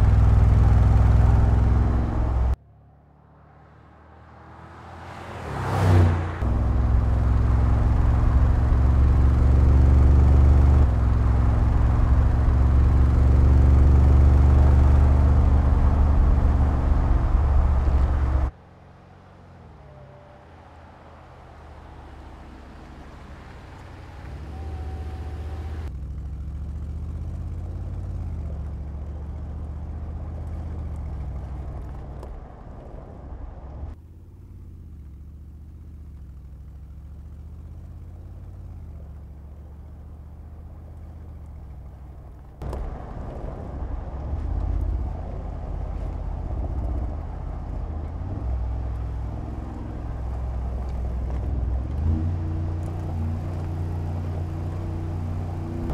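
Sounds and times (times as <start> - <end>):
car engine accelerating: 0.0 - 55.9.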